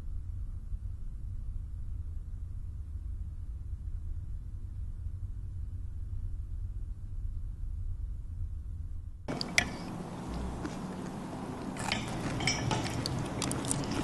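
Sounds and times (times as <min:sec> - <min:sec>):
low hum: 0:00.0 - 0:14.0
utensil clinking on ceramic bowl: 0:09.3 - 0:10.0, 0:11.7 - 0:14.0.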